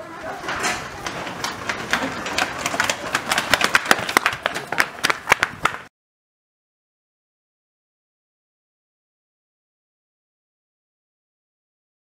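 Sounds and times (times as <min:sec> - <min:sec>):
running footsteps on concrete: 0:00.0 - 0:05.9.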